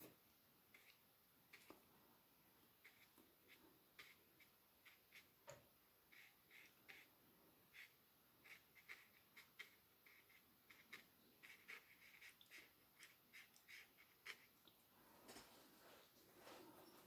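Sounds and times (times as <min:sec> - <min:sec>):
brush stroking on paper: 0:00.7 - 0:01.9, 0:02.7 - 0:05.4, 0:06.1 - 0:07.1, 0:07.7 - 0:14.6.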